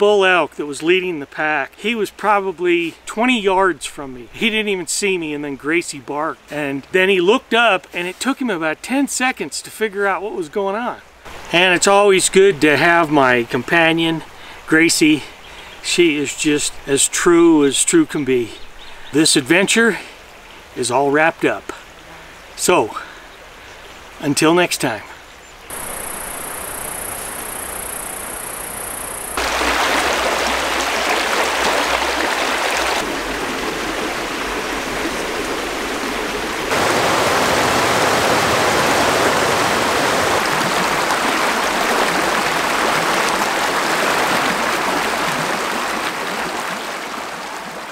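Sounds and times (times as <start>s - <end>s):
steady high hiss: 25.7s - 30.3s, 36.7s - 40.1s
creek running over rocks: 29.4s - 47.9s.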